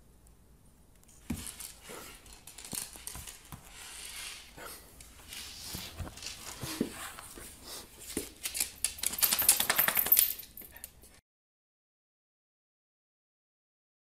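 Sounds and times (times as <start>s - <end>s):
dog claws clattering on wood floor: 1.2s - 5.1s, 8.0s - 10.9s.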